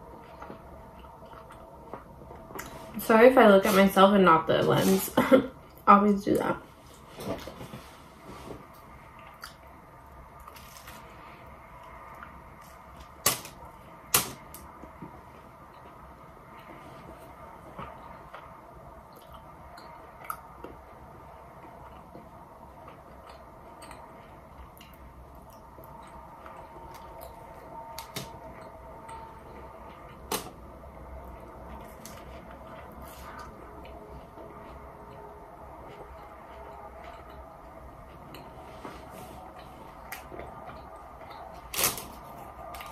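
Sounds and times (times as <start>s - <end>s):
low background hum: 0.0s - 42.9s
chewing crunchy food: 0.1s - 2.8s, 8.7s - 13.1s, 17.8s - 20.9s, 31.2s - 42.9s.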